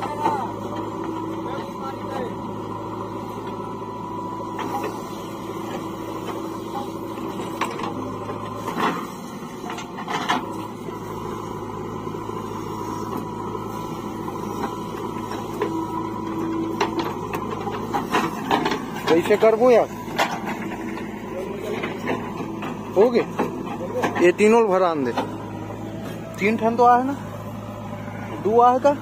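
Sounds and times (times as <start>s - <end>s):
diesel engines running: 0.0s - 29.0s
digging clunks: 4.4s - 26.6s.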